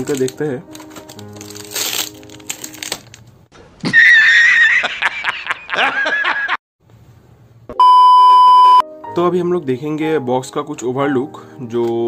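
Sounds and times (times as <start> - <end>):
background music: 0.0 - 3.4, 8.8 - 12.0
plastic wrap crinkling and tearing: 0.0 - 3.5
man laughing sound effect: 3.8 - 6.6.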